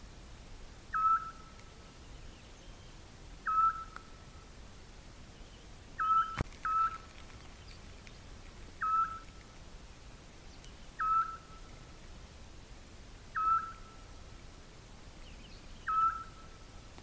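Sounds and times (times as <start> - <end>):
owl whistled calls: 0.9 - 1.5, 3.4 - 4.0, 6.0 - 7.0, 8.8 - 9.3, 11.0 - 11.7, 13.3 - 14.1, 15.8 - 16.6.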